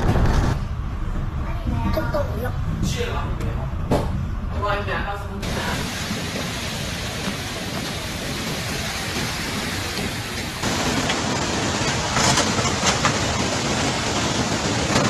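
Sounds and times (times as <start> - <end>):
floodwater rushing: 5.4 - 15.0
heavy rain: 5.4 - 15.0.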